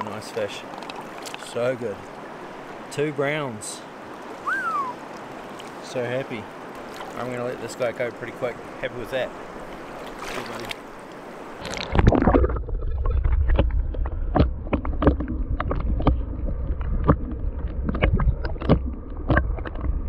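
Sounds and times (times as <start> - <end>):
river rushing: 0.0 - 11.6
sharp underwater clicks: 0.7 - 1.5, 11.6 - 20.0
muffled underwater river rumble: 11.9 - 20.0.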